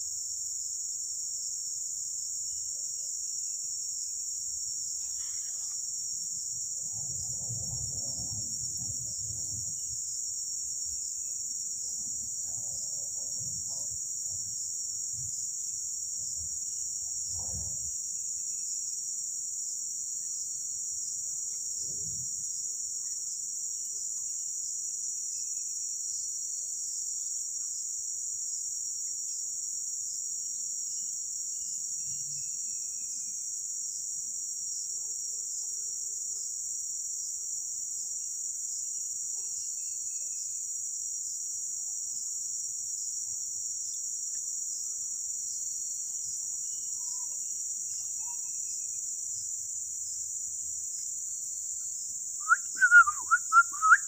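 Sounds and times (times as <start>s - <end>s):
insect chorus drone: 0.0s - 54.0s
faint falling bird whistles: 52.5s - 54.0s.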